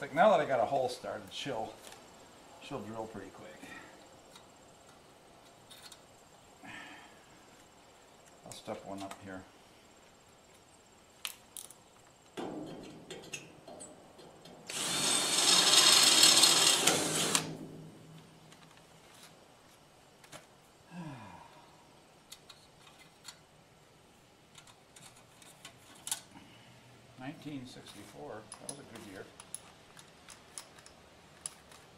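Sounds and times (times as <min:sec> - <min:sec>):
electric drill boring through steel: 0:14.7 - 0:17.6.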